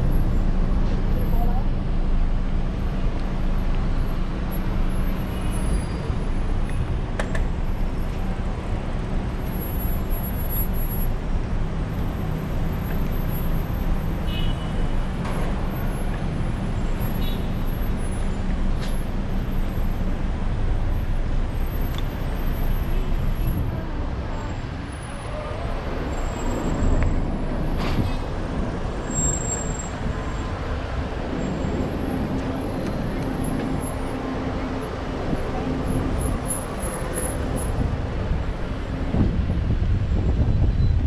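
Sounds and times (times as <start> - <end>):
road traffic noise: 0.0 - 41.0
wind rumble on microphone: 29.9 - 41.0.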